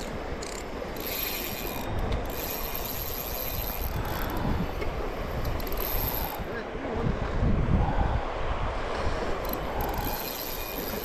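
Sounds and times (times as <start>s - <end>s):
fishing reel clicking: 0.0s - 4.6s, 5.4s - 6.4s, 9.4s - 11.0s.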